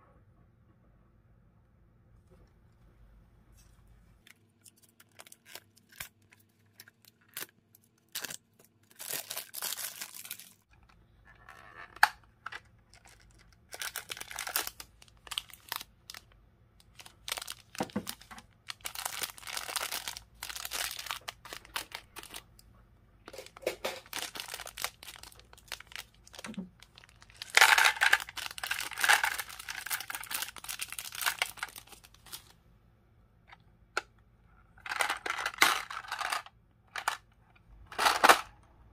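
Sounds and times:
plastic bag crinkling and tearing: 4.6 - 10.7, 12.9 - 22.5, 23.3 - 32.5.

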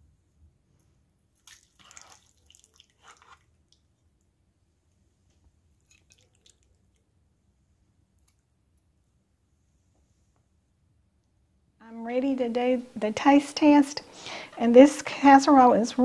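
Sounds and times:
soft wet squishing: 0.8 - 9.0.

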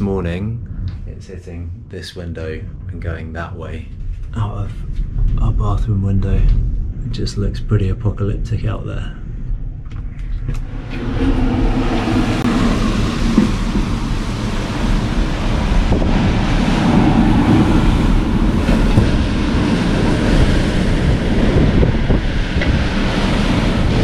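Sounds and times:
storm wind buffeting microphone: 0.0 - 24.0
driving rain: 10.3 - 24.0.

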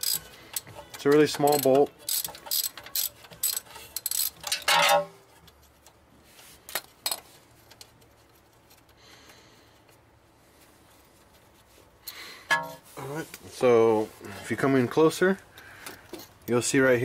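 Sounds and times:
socket ratchet clicking: 0.0 - 4.7.

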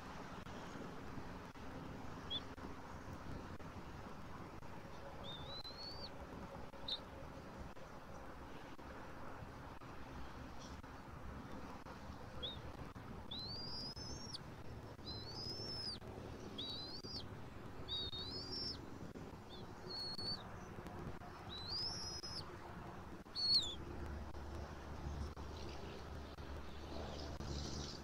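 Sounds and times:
eagle whistled calls: 5.2 - 6.1, 13.3 - 14.4, 15.0 - 16.0, 16.6 - 17.2, 17.9 - 18.8, 19.9 - 20.4, 21.5 - 22.4, 23.3 - 23.8.

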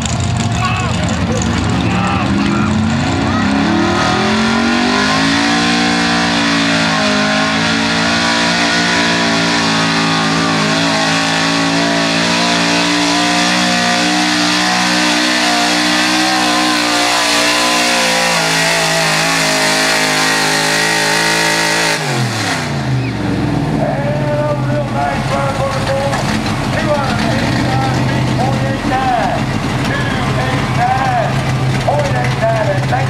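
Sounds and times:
truck engine at high revs: 0.0 - 33.0.

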